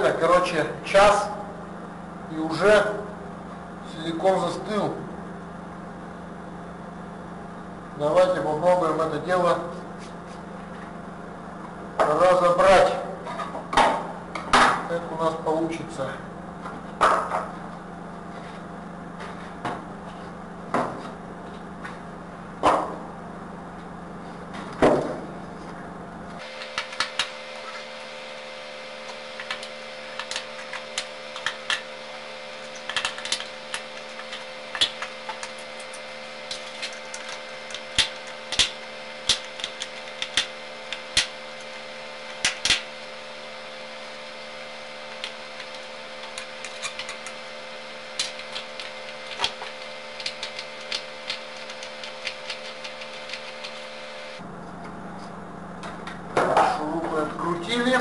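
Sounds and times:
steady hum: 0.0s - 58.0s.

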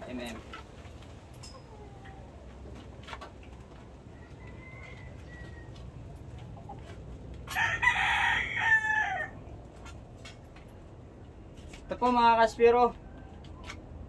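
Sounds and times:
rooster crowing: 4.1s - 5.8s, 7.5s - 9.4s.

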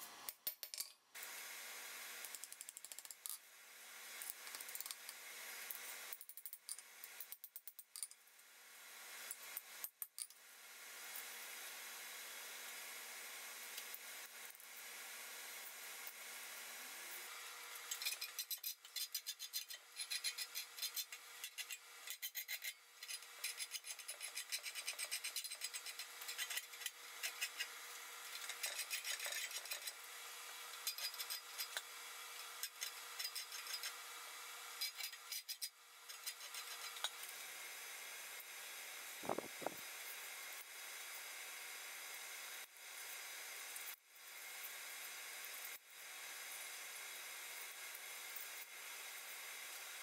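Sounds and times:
wire brush scrubbing steel: 17.8s - 30.1s, 30.7s - 34.0s, 34.8s - 37.2s.

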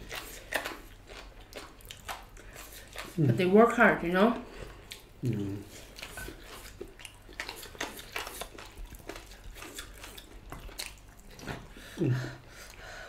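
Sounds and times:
people chewing food: 0.0s - 13.0s.

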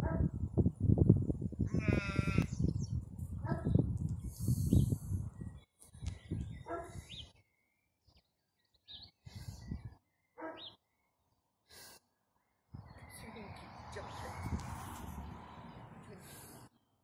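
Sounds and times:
wind gusting on microphone: 0.0s - 7.3s, 9.2s - 10.0s, 12.7s - 16.1s.

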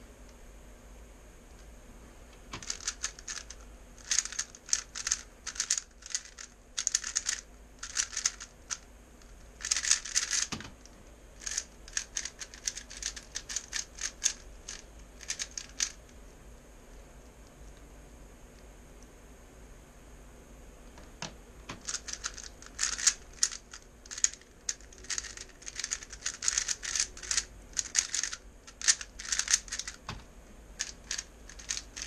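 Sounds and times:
rapid plastic clacking of cube: 2.5s - 16.0s, 21.7s - 30.2s, 30.8s - 32.0s.

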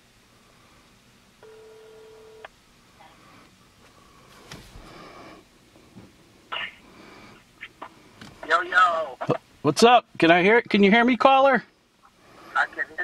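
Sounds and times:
phone ringing tone: 1.4s - 2.5s.

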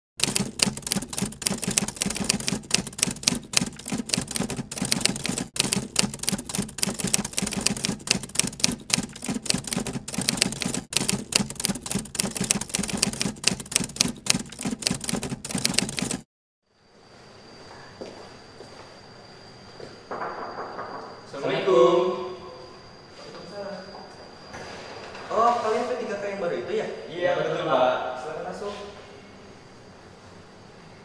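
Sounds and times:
manual typewriter key strikes: 0.2s - 16.2s.

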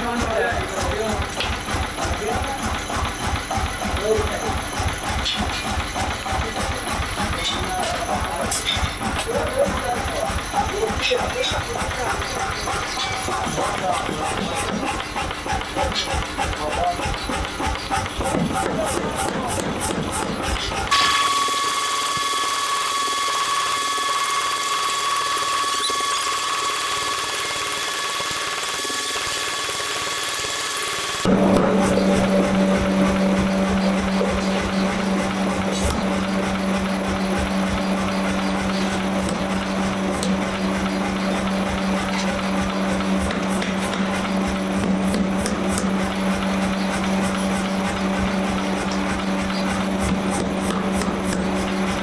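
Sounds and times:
power hammer striking steel: 0.0s - 52.0s
high-pitched whine: 20.9s - 42.6s.

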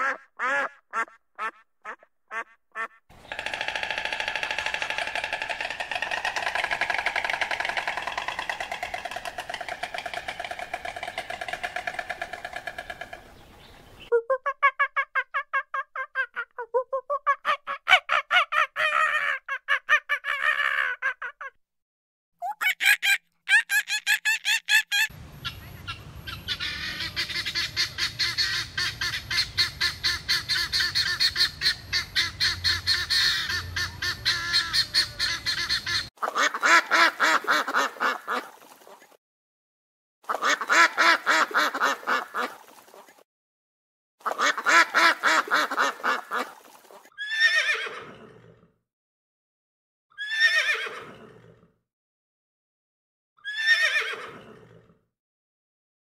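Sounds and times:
rapid high chattering calls: 2.8s - 14.1s, 25.0s - 36.1s
ducks quacking: 25.5s - 38.6s, 40.3s - 42.7s, 44.2s - 46.7s
horse whinnying: 47.2s - 48.6s, 50.2s - 51.6s, 53.4s - 54.9s.

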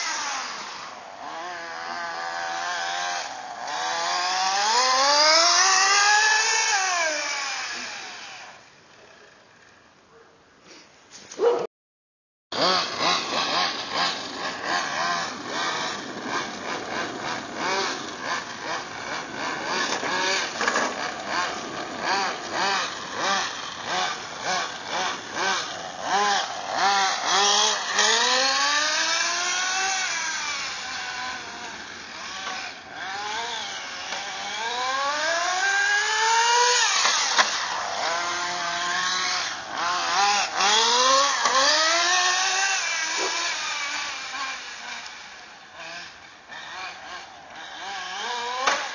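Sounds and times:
toy car motor revving: 0.0s - 8.6s, 12.6s - 48.9s.

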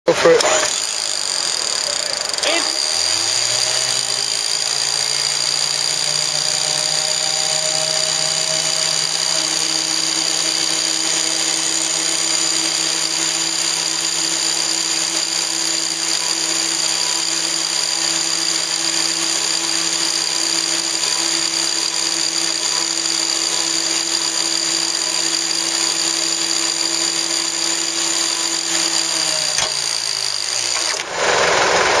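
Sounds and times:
winch motor and gear whine: 0.4s - 32.0s
click: 29.6s - 29.8s.

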